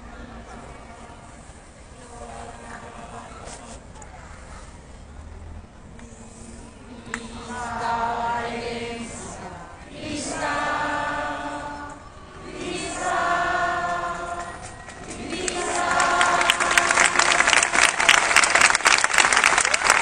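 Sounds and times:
crowd singing: 6.7 - 18.7.

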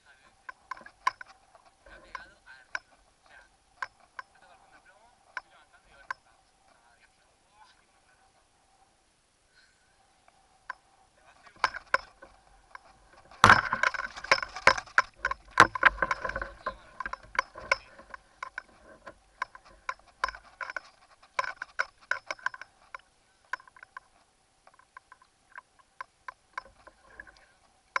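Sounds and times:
sharp clicks and knocks: 0.4 - 4.4, 10.7 - 28.0.

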